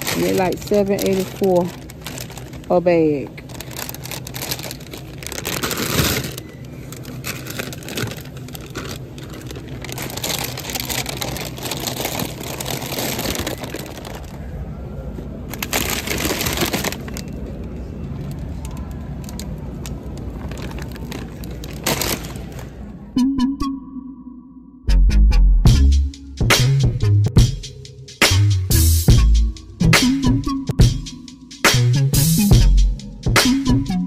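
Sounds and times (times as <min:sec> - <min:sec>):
plastic bags crinkling: 0:00.0 - 0:14.7, 0:15.4 - 0:18.5, 0:19.2 - 0:22.9
low background hum: 0:00.0 - 0:24.8.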